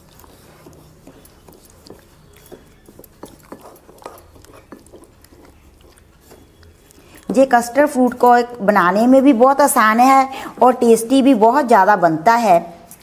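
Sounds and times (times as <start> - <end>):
utensils tapping a bowl: 0.6 - 5.6.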